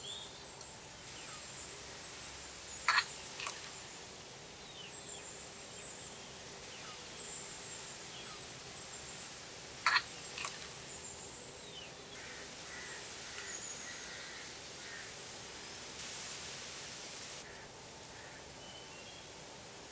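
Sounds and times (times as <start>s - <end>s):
faint outdoor background: 0.0s - 19.9s
crow cawing: 2.9s - 3.1s, 12.2s - 15.2s, 17.4s - 18.5s.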